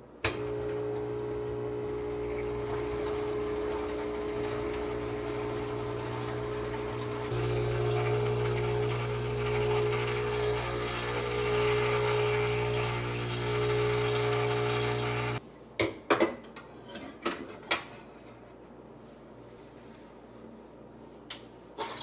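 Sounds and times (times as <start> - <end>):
espresso machine pump humming: 0.3 - 15.4
hot water running into pitcher: 0.3 - 15.4.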